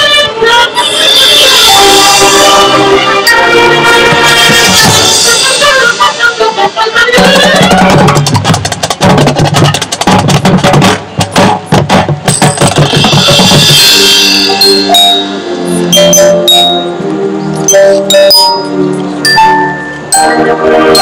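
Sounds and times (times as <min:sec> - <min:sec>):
marching band playing: 0:01.0 - 0:21.0
rapid drum strokes: 0:07.1 - 0:16.0.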